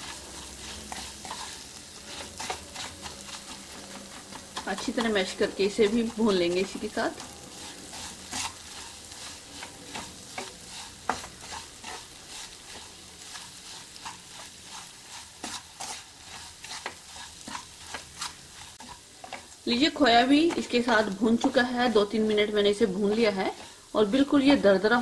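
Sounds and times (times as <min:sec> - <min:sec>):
light frying sizzle: 0:00.0 - 0:25.0
wooden spatula scraping pan: 0:00.0 - 0:25.0.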